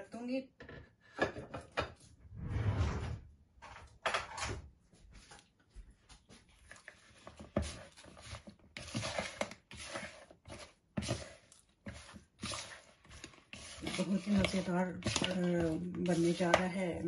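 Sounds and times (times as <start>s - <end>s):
spoon mixing meat in plastic bowl: 5.1s - 17.0s.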